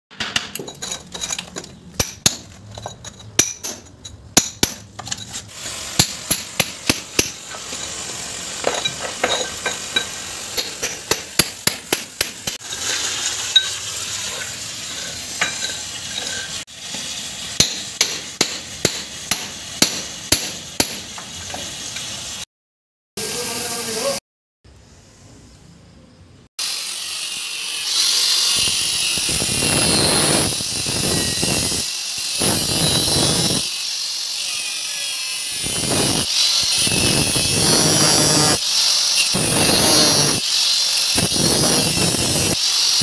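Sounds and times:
water spraying from pipe leak: 12.5 - 17.6.

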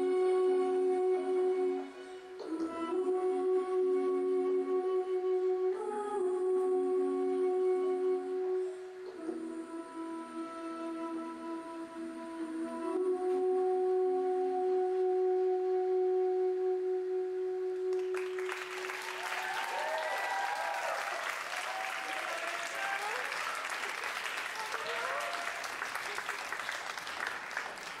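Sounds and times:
audience applause and cheering: 17.9 - 28.0.

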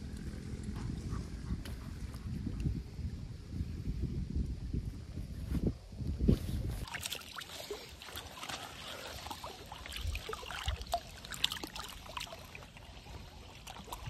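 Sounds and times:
water trickling and dripping: 6.8 - 14.0.

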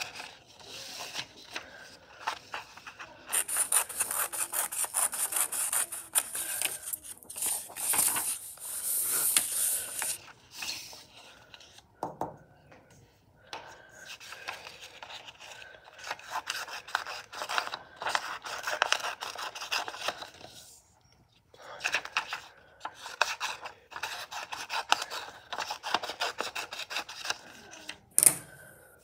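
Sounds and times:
scissors snipping paper: 2.5 - 8.4.

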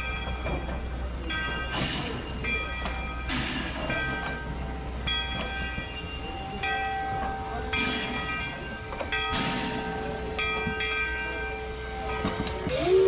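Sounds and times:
steam locomotive bell ringing: 0.0 - 13.0
locomotive low rumble: 11.9 - 13.0
steam hissing: 12.7 - 13.0.

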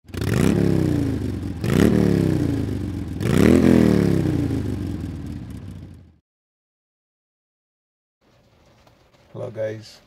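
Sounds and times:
motorcycle engine revving: 0.0 - 6.2.

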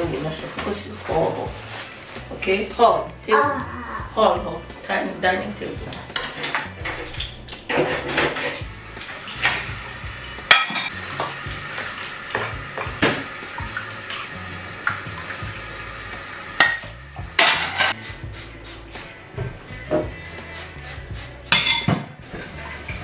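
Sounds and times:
dishes clattering in metal sink: 5.9 - 8.7, 10.5 - 11.4, 16.6 - 18.0, 21.5 - 22.2.

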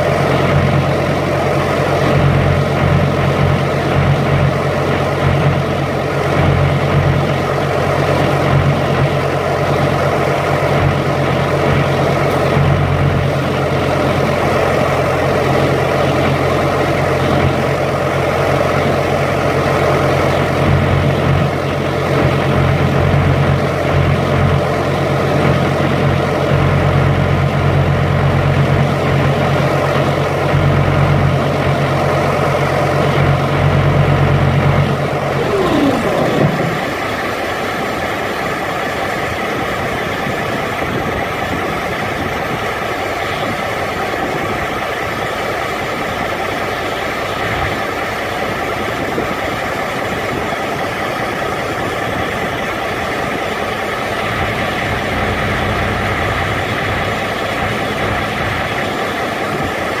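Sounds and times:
refrigeration unit humming: 34.8 - 37.9
falling mechanical whine: 34.8 - 38.1.

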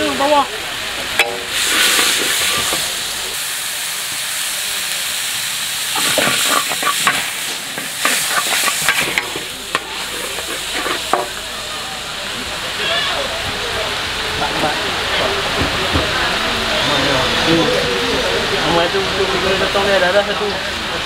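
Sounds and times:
noodles sizzling in a wok: 0.0 - 13.1
metal spatula scraping a wok: 1.2 - 3.3, 6.0 - 11.4.

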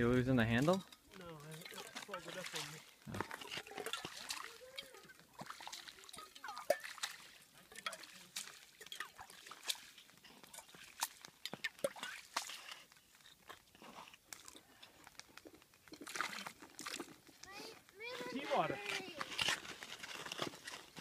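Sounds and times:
broken ice crunching and clicking: 0.5 - 21.0.

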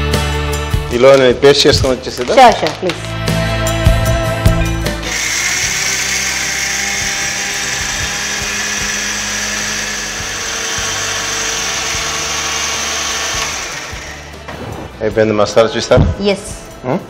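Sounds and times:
mixer grinder running: 5.0 - 14.5.

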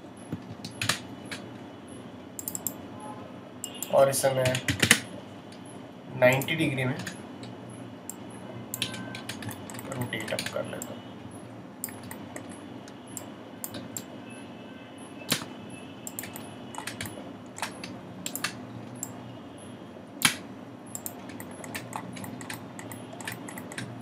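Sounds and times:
mouse and keyboard clicking: 21.0 - 23.9.

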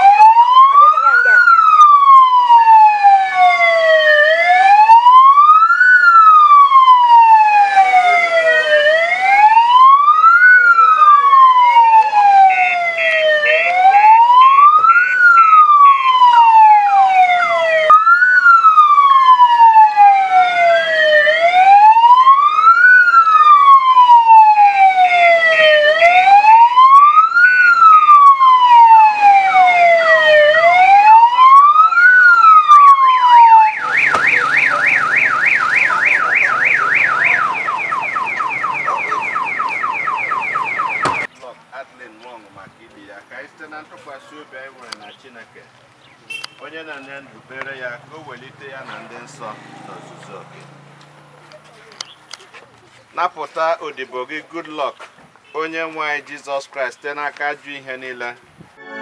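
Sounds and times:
electronic siren wailing: 0.0 - 41.3.

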